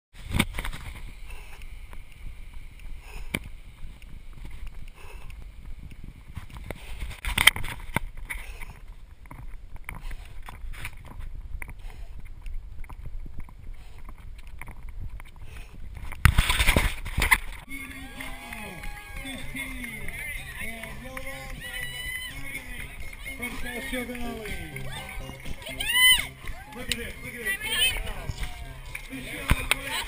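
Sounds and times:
wind rumbling on microphone: 0.2 - 26.9
person breathing: 1.2 - 1.8, 2.8 - 3.4, 4.9 - 5.4, 8.3 - 8.9, 9.9 - 10.6, 11.7 - 12.4, 15.4 - 15.9
running footfalls: 13.0 - 30.0.

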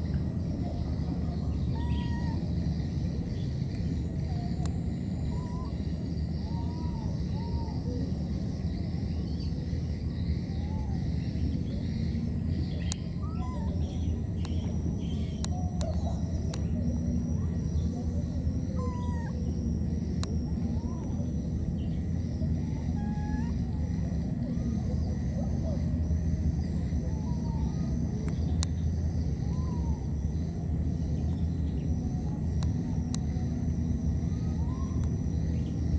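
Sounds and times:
baby monkey squeaky calls: 13.2 - 13.7, 18.8 - 19.4, 22.7 - 23.6.

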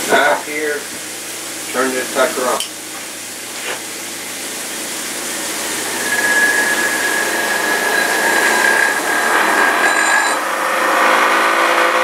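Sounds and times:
juicer motor whirring: 5.2 - 12.0.

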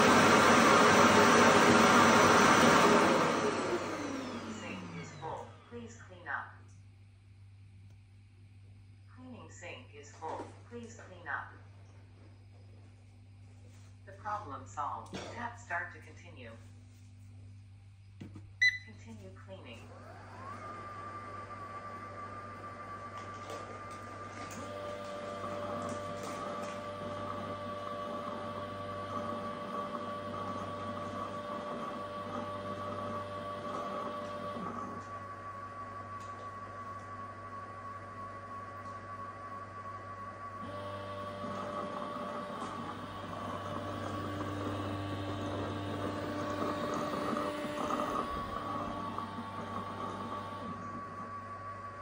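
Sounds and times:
robot vacuum motor whine: 0.0 - 5.7, 19.9 - 52.0.

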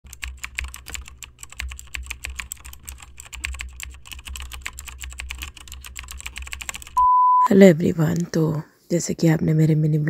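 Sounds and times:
rapid irregular clicking: 0.1 - 7.0.

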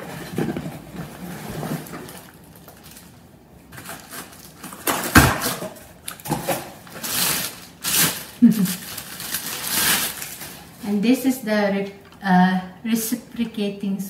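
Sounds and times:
plastic and cardboard rustling: 0.0 - 11.1.

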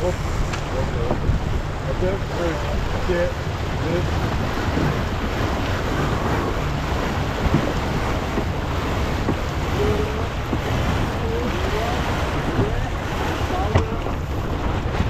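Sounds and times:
water rushing along hull: 0.0 - 15.0
wind buffeting microphone: 0.0 - 15.0.

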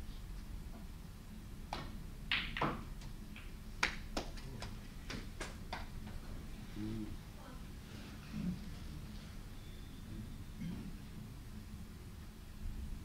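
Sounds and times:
snooker balls clicking: 1.7 - 6.2
cue tip striking ball: 1.8 - 3.5.

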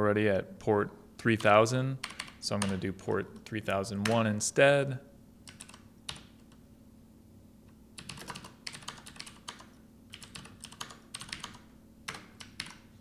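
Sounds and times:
keyboard typing: 1.3 - 4.2, 5.4 - 6.6, 8.0 - 12.9.

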